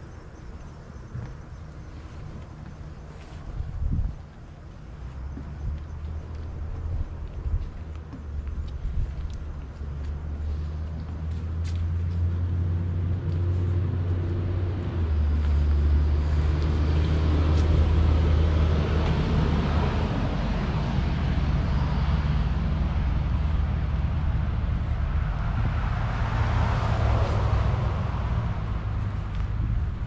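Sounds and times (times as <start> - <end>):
engine humming: 0.0 - 30.0
footsteps on wooden boards: 1.1 - 12.4.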